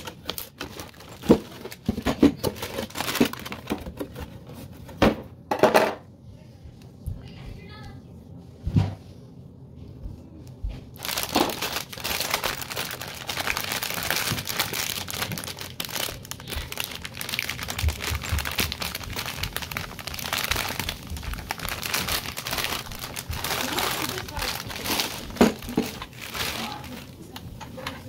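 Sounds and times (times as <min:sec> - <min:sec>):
crinkling and crackling: 0:00.0 - 0:05.0, 0:10.4 - 0:28.0.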